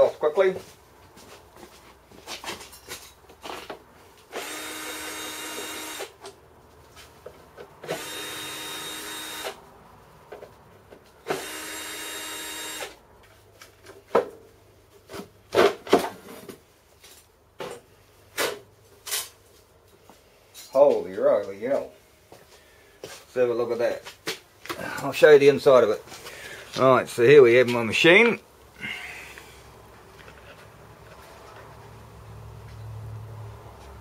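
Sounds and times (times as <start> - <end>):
cordless drill running: 4.3 - 6.2, 7.8 - 9.6, 11.3 - 13.0.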